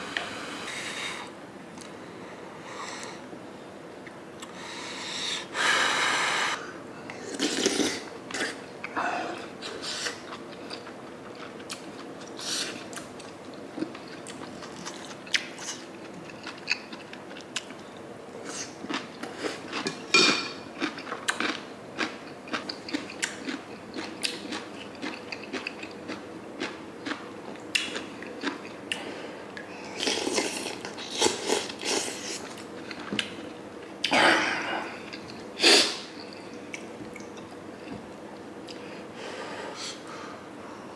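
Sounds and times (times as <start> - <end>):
man chewing meat: 9.6 - 20.0, 20.8 - 33.5.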